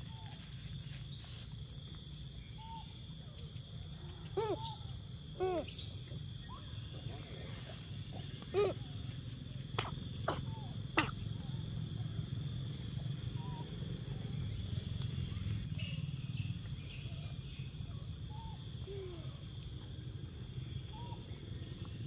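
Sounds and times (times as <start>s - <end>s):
insect drone: 0.0s - 22.0s
animal calls: 4.2s - 11.8s.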